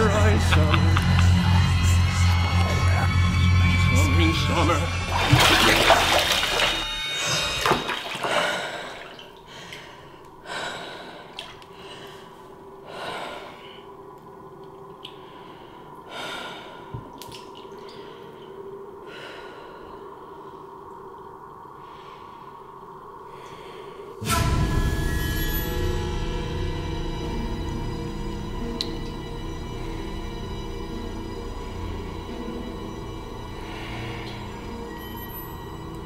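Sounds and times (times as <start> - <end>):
water dripping: 4.9 - 6.9, 7.6 - 10.4, 11.2 - 12.3, 13.6 - 16.1, 16.9 - 18.6, 27.1 - 33.2, 33.8 - 36.0
bathwater sloshing: 4.9 - 10.0.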